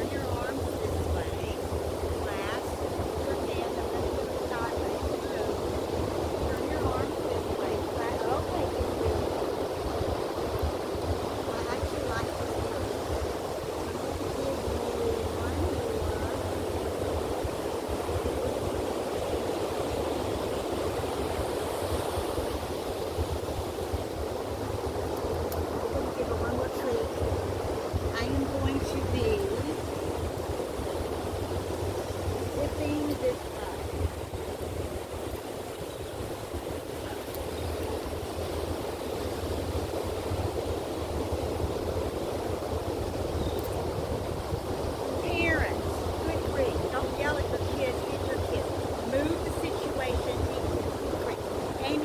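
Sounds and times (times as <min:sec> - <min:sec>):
ocean surf washing in: 0:00.0 - 0:52.0
wind buffeting microphone: 0:00.0 - 0:52.0.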